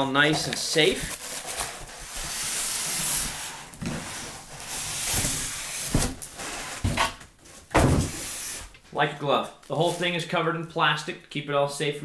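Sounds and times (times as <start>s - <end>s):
cardboard and foam scraping: 0.3s - 8.7s.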